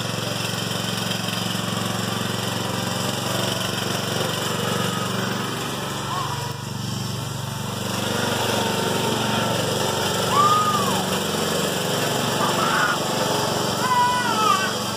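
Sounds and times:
lawn mower engine running: 0:00.0 - 0:14.9
high rising and falling call: 0:10.3 - 0:11.2.

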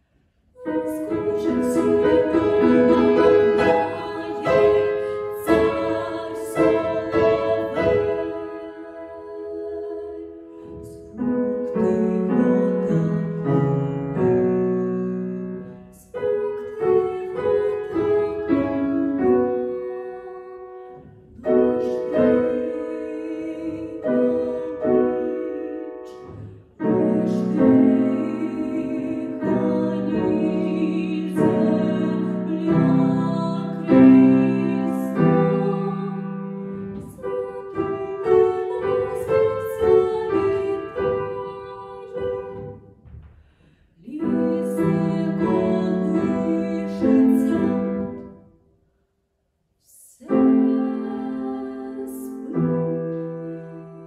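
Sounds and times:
grand piano: 0:00.0 - 0:48.6, 0:50.0 - 0:54.0
woman singing classical song: 0:00.6 - 0:48.4, 0:49.8 - 0:54.0.

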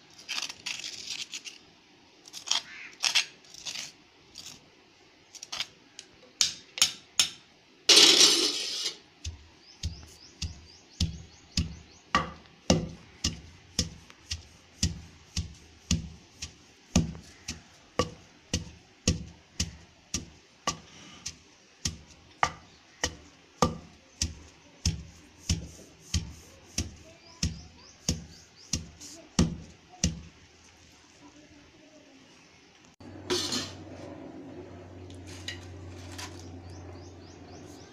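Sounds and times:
pestle pounding in stone mortar: 0:09.2 - 0:30.4.

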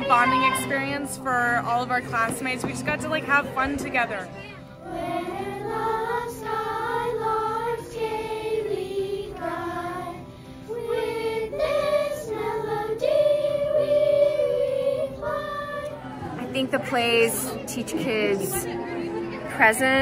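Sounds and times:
children singing: 0:04.8 - 0:16.4.

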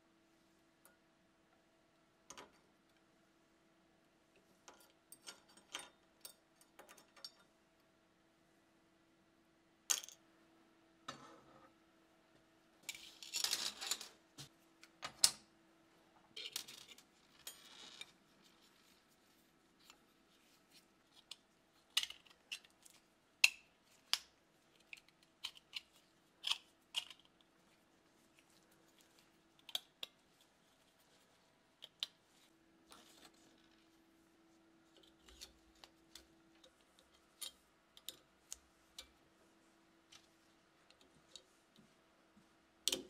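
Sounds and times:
faint steady hum: 0:00.0 - 0:43.0.

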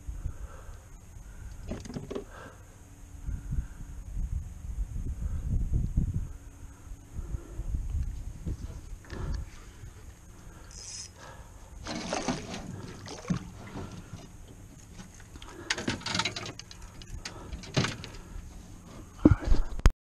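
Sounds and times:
gear knocking against canoe hull: 0:01.5 - 0:02.4, 0:11.8 - 0:18.5
fish splashing in water: 0:11.8 - 0:14.2.

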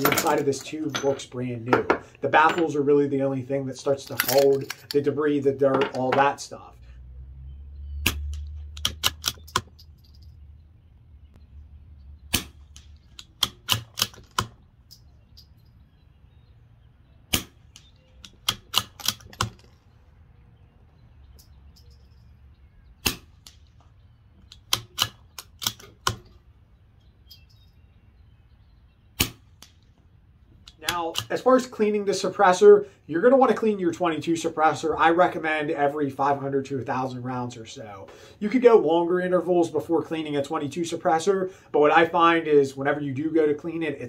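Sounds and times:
rifle bolt metallic clicks: 0:08.0 - 0:09.9, 0:12.3 - 0:15.6, 0:17.3 - 0:19.9, 0:23.0 - 0:26.4, 0:30.6 - 0:31.4.

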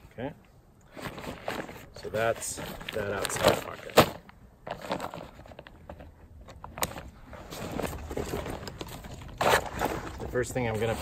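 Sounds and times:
backpack fabric rustling: 0:06.8 - 0:11.0.

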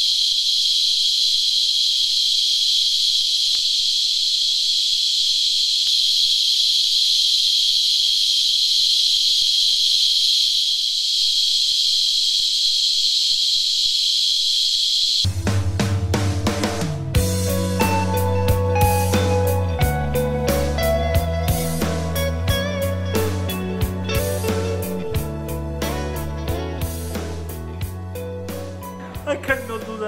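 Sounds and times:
cicada buzzing: 0:00.0 - 0:15.3
music with drums: 0:15.3 - 0:30.0.

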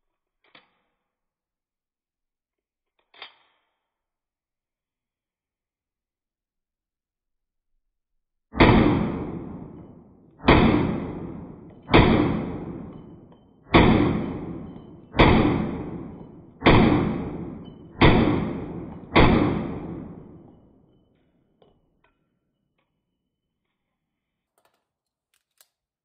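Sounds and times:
pistol shots: 0:08.6 - 0:20.6.

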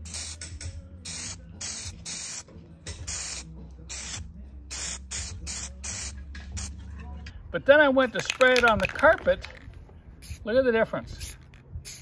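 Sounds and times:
aerosol spray can hissing: 0:00.0 - 0:00.4, 0:01.1 - 0:02.4, 0:03.1 - 0:06.7, 0:11.2 - 0:12.0.

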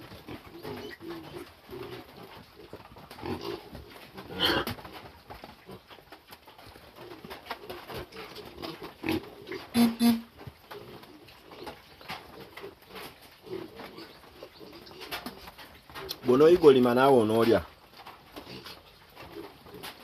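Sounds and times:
dove cooing: 0:06.9 - 0:16.0.

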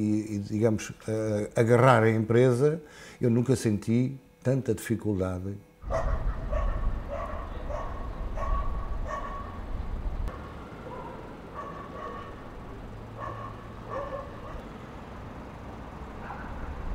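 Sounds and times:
dog barking: 0:05.8 - 0:09.6, 0:10.3 - 0:12.4, 0:13.1 - 0:14.6, 0:16.2 - 0:16.9.

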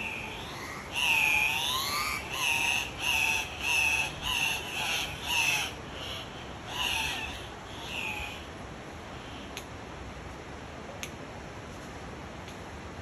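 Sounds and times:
bird calling: 0:00.0 - 0:08.5.

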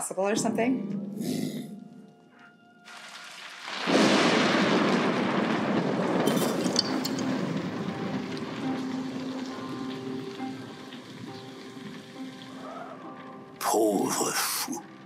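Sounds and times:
thunderclap rumbling: 0:03.6 - 0:13.5.

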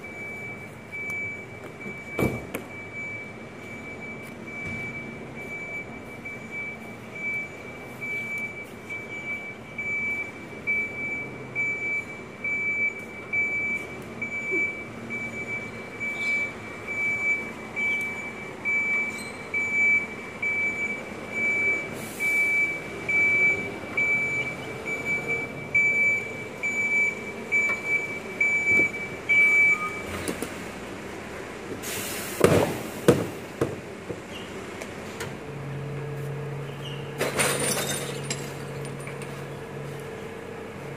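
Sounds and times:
truck reversing alarm beeping: 0:00.0 - 0:30.8
diesel engine running: 0:00.0 - 0:40.9
short air hiss: 0:31.8 - 0:32.4.

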